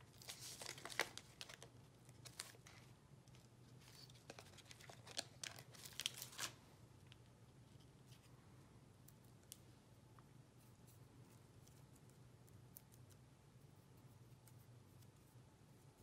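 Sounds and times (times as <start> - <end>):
foam sheet crinkling and rustling: 0.0 - 2.8, 3.8 - 6.6.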